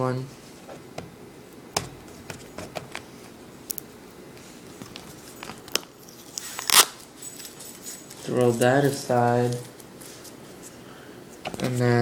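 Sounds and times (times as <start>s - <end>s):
tape peeling off plastic packaging: 5.6s - 7.1s.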